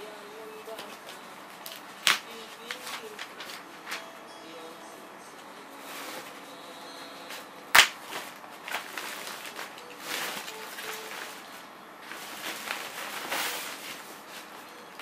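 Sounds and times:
plastic wrapping crinkling: 7.7s - 15.0s.

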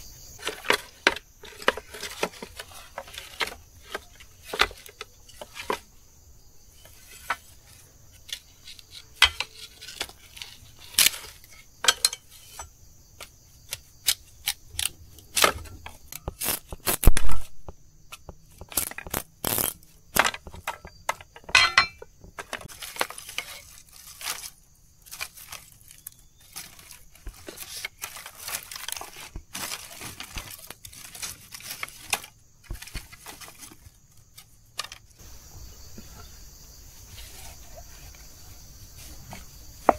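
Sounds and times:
objects clinking and knocking: 8.8s - 12.8s, 18.2s - 35.2s.

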